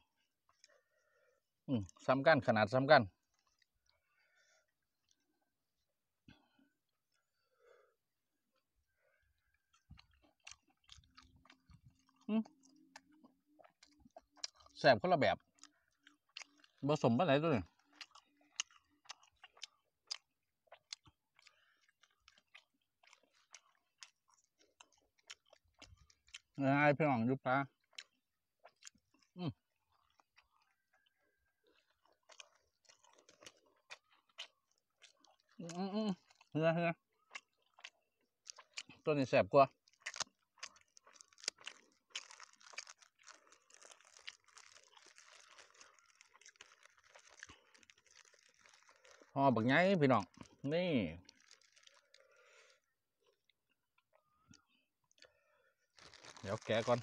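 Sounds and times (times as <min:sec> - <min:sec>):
close-up chewing with lip smacks: 0:00.4 - 0:00.8, 0:03.2 - 0:04.1, 0:09.3 - 0:14.8, 0:15.4 - 0:26.6, 0:27.6 - 0:57.0
leaf wrapper crinkling: 0:41.0 - 0:52.6, 0:55.9 - 0:57.0.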